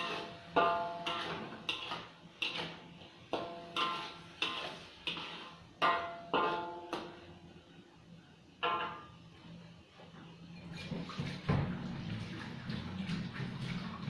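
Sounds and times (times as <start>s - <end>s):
metal spatula clanking in wok: 0.0s - 7.2s, 8.6s - 9.1s.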